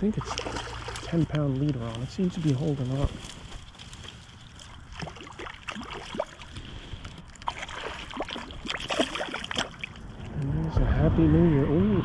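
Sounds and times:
water sloshing and splashing: 0.0 - 10.4
wind on microphone: 10.0 - 12.0.

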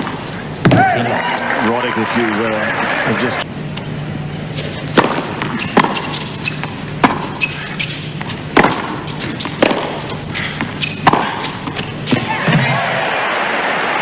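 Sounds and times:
steady low hum: 0.0 - 14.0
tennis ball struck by racquets: 4.6 - 12.8.

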